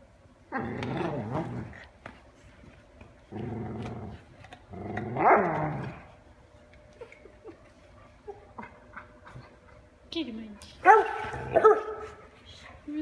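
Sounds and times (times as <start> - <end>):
dog growling: 0.5 - 1.9, 3.2 - 6.1.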